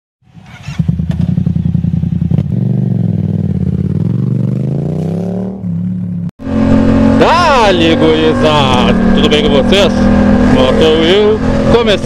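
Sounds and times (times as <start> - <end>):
motorcycle engine idling and revving: 0.2 - 12.0.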